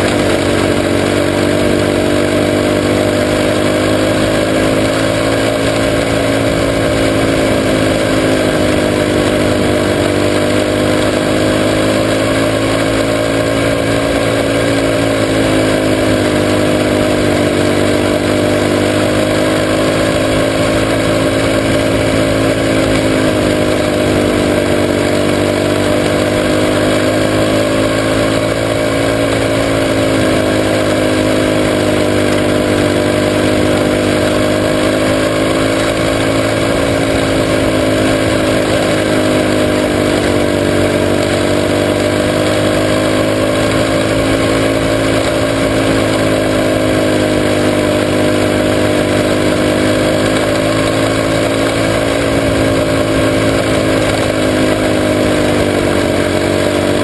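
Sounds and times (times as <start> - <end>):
racing car engine: 0.0 - 57.0.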